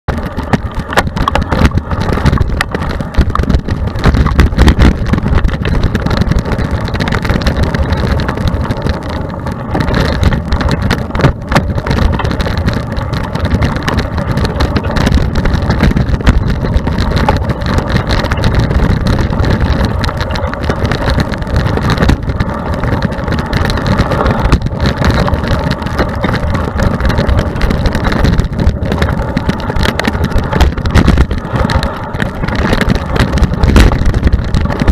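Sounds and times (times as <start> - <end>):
bike knocking and rattling: 0.1 - 34.9
tyres rumbling over dirt: 0.1 - 34.9
wind buffeting microphone: 0.1 - 34.9.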